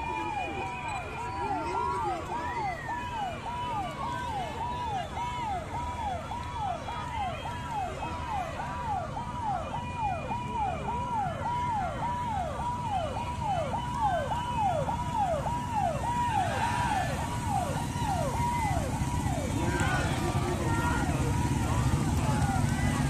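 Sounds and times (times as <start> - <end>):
motorcycles passing: 0.0 - 23.0.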